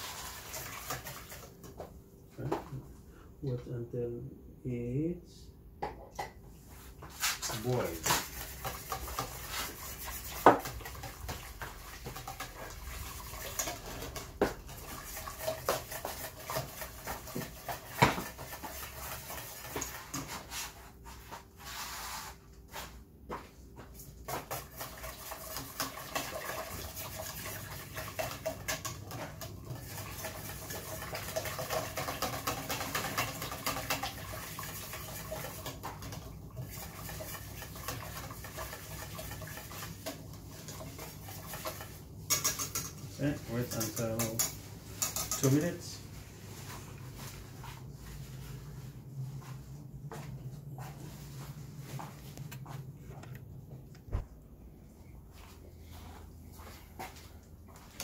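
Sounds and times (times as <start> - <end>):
whisk knocking on pot: 0.0 - 1.4, 7.7 - 20.5, 24.2 - 45.8
whisk scraping metal pot: 0.0 - 1.5, 7.2 - 22.1, 24.2 - 46.0.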